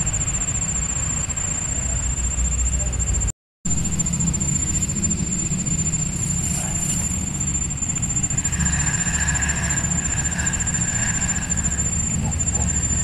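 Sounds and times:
high-pitched whine: 0.0s - 13.0s
low rumble: 2.5s - 13.0s
fishing reel whirring: 3.7s - 13.0s.

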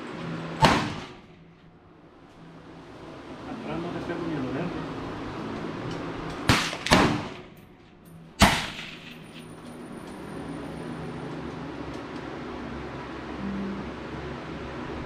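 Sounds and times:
rifle shots: 0.6s - 1.2s, 6.5s - 7.4s, 8.4s - 9.0s.

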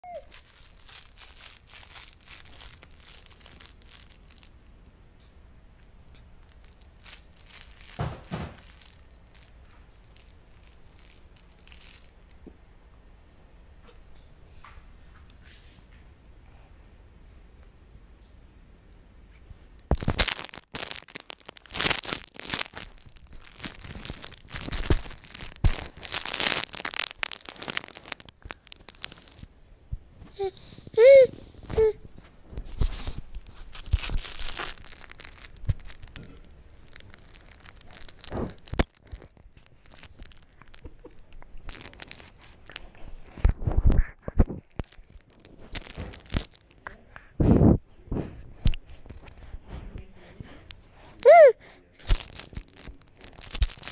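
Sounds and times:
handling noise on camera microphone: 6.2s - 12.4s, 19.3s - 50.8s, 52.0s - 53.9s.

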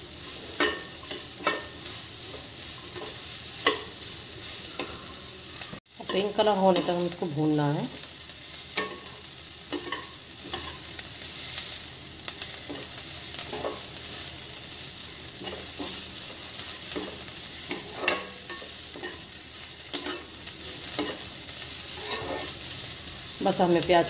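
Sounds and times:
onions sizzling in oil: 0.0s - 24.0s
steel spatula scraping and knocking pan: 0.5s - 3.9s, 16.9s - 19.2s, 21.9s - 22.6s.

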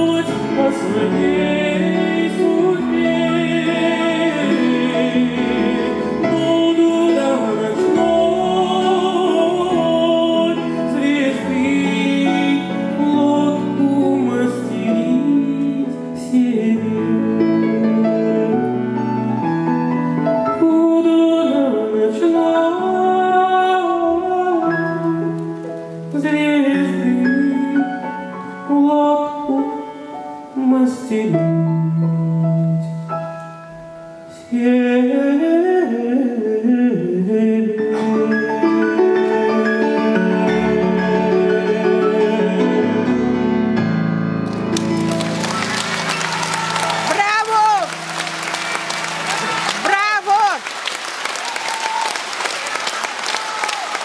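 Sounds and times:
man singing into microphone: 0.0s - 19.4s, 20.4s - 33.1s, 34.3s - 43.2s
grand piano accompaniment: 0.0s - 54.0s.

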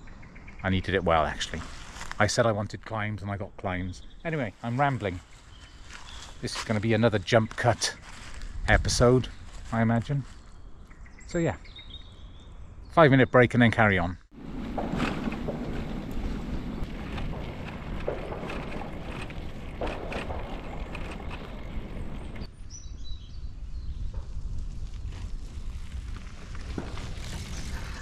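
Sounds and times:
bicycle tyres rolling on gravel: 1.0s - 2.4s, 14.3s - 22.5s, 23.8s - 28.0s
wind rushing on microphone: 14.4s - 28.0s
scattered clicks and knocks: 14.6s - 22.5s.

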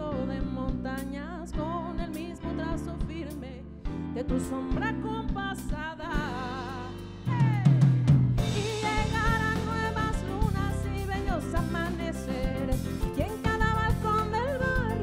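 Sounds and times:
keyboard: 0.0s - 15.0s
woman singing: 0.0s - 15.0s
drum kit: 4.3s - 15.0s
live band playing loudly: 6.5s - 15.0s.

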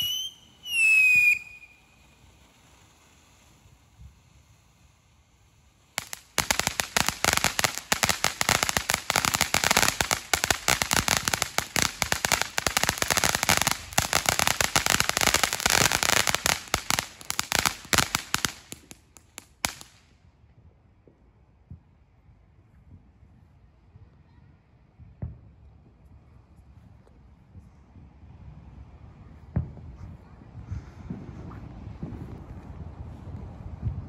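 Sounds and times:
firework crackling: 0.0s - 20.2s.

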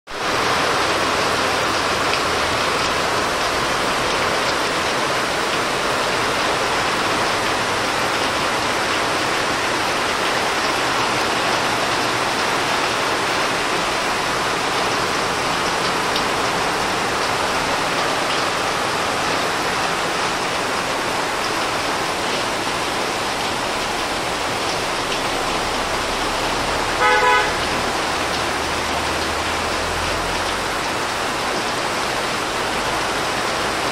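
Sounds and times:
heavy rain pouring: 0.1s - 33.9s
car horn honk: 27.0s - 27.7s.

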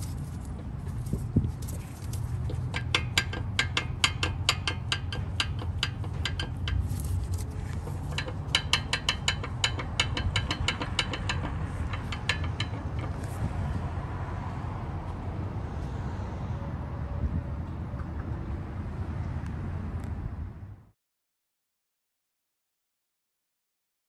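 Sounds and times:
loose suspension link clunking: 0.0s - 13.8s.

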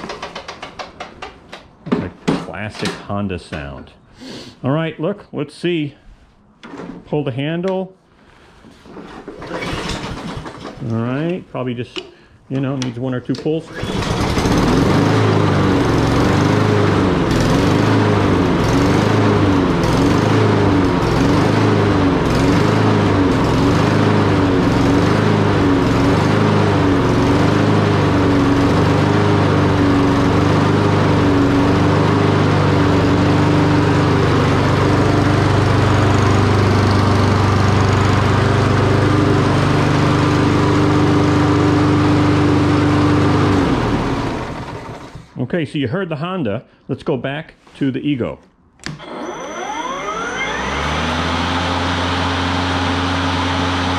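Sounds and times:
lawn mower engine running: 0.0s - 1.4s, 8.9s - 11.4s, 13.3s - 45.4s, 48.8s - 53.9s.

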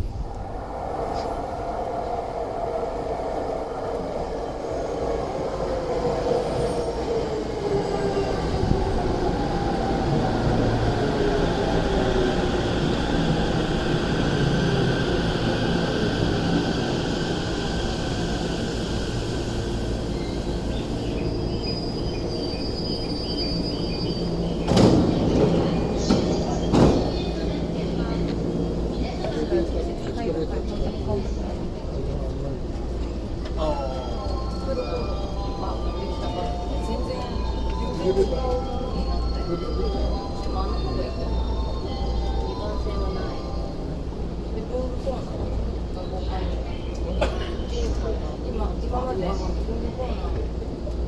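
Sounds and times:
electric train braking to a stop: 0.0s - 27.4s.

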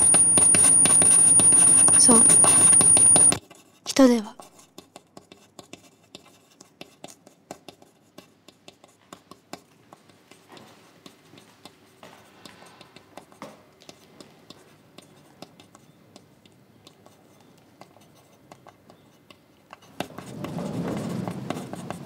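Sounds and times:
pen scratching on paper: 0.0s - 3.8s, 4.4s - 9.6s, 17.0s - 22.0s.

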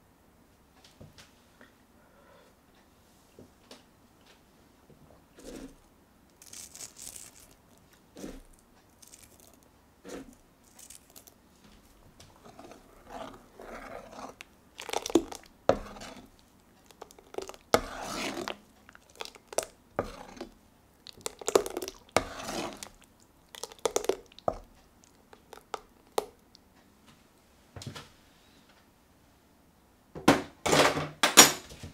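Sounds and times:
ladle stirring thick soup: 5.3s - 26.7s.

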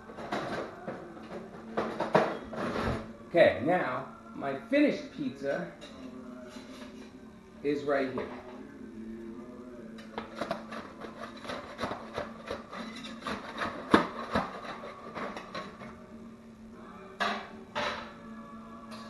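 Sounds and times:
metal spatula scraping pizza pan: 10.4s - 15.8s.

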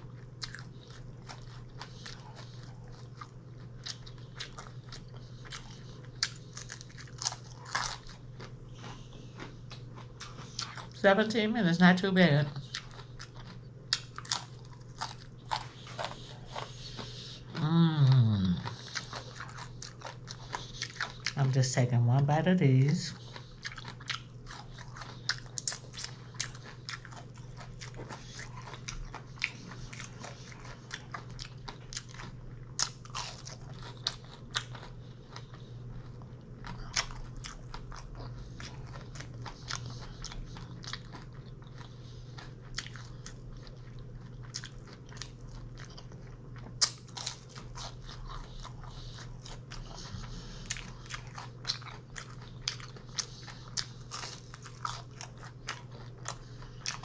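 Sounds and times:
chewing and crunching food: 0.0s - 57.0s.

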